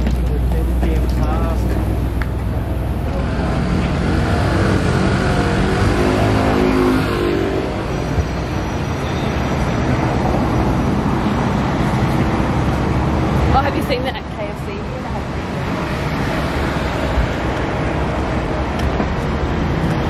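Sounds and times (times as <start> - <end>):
road noise: 0.0 - 20.0
vehicle engine passing by: 2.7 - 7.9.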